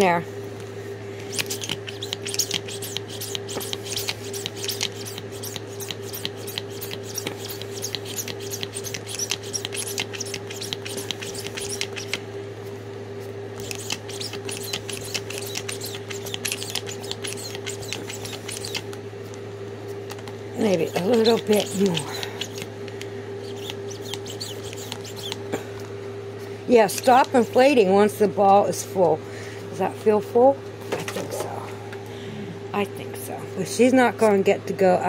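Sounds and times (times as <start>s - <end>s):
hand pump puffs of air: 1.2s - 12.2s, 13.6s - 18.8s.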